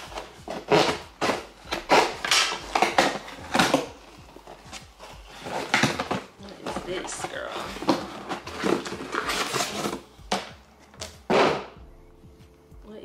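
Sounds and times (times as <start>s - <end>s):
packing tape ripping: 0.0s - 11.6s
cardboard rustling: 0.0s - 11.7s.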